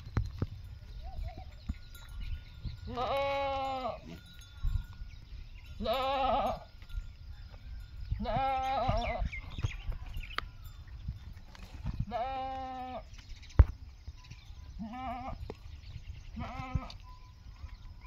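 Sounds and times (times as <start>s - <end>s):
goats bleating: 2.9s - 4.3s, 5.8s - 6.7s, 8.2s - 9.2s, 12.1s - 13.1s, 14.8s - 15.4s, 16.4s - 17.0s.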